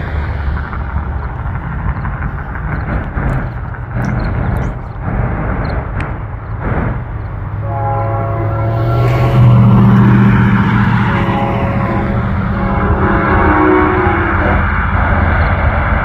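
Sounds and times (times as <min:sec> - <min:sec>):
locomotive rumble: 0:00.0 - 0:16.0
train air horn blast: 0:07.6 - 0:14.7.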